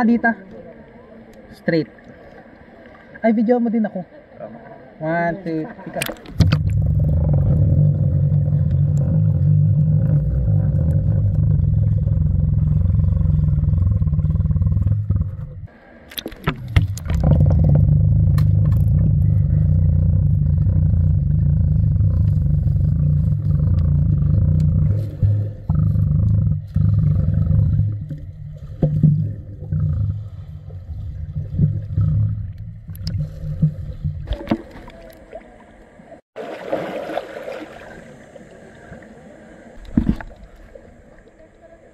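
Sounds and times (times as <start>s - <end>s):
water splashes: 0.0s - 13.5s, 15.2s - 26.0s, 26.6s - 41.9s
underwater rumble of water: 5.7s - 41.9s.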